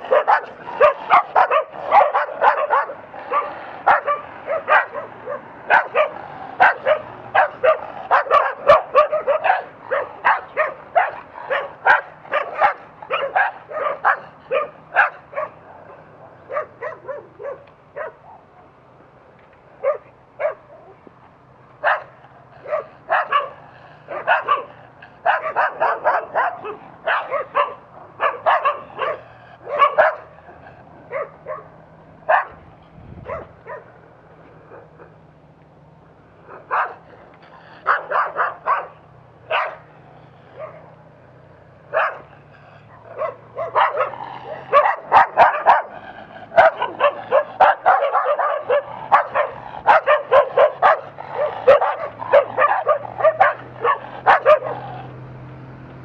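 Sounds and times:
dogs barking sharply: 0.0s - 18.5s, 19.7s - 21.0s, 21.8s - 35.2s, 36.4s - 55.2s.

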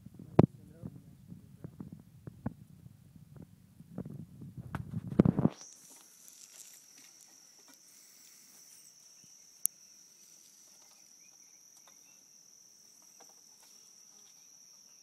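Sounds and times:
low rumbling: 0.0s - 5.6s
insect high-pitched trill: 5.3s - 15.0s.

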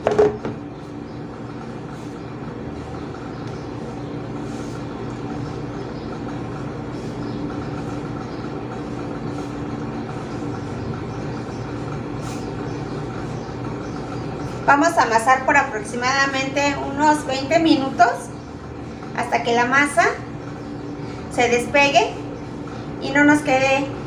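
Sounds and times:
machine hum: 0.0s - 24.0s.

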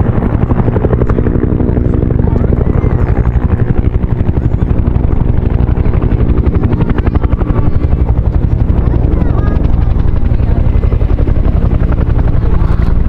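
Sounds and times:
helicopter rotors chopping: 0.0s - 13.0s
turbine engine drone: 0.0s - 13.0s.

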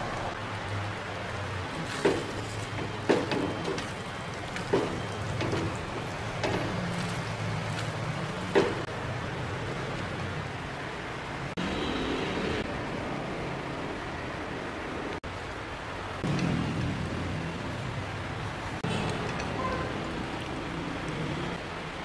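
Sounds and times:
rice simmering crackle: 0.0s - 10.6s.

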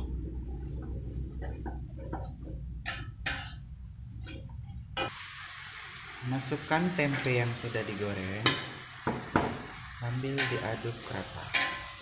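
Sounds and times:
steady low hum: 0.0s - 5.1s
metal spatula scraping wok: 2.8s - 3.7s, 10.2s - 12.0s.

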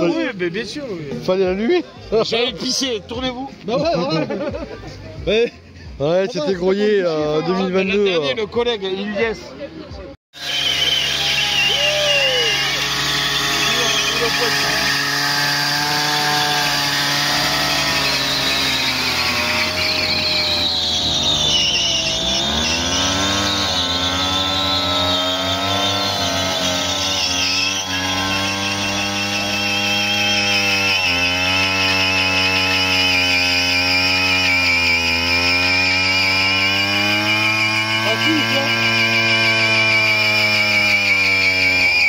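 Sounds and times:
two-stroke moped engine revving: 10.4s - 42.0s.

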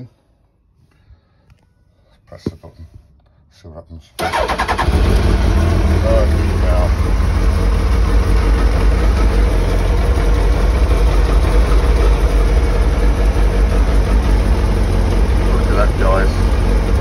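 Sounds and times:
motorcycle engine idling: 4.9s - 17.0s.

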